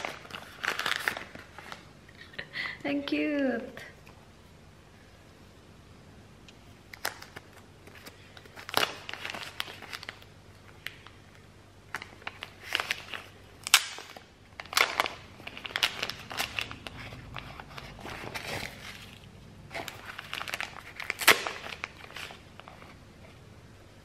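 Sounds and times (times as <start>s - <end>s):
wrapping sleeve crinkling: 0.0s - 1.9s, 6.9s - 11.2s, 11.9s - 23.0s.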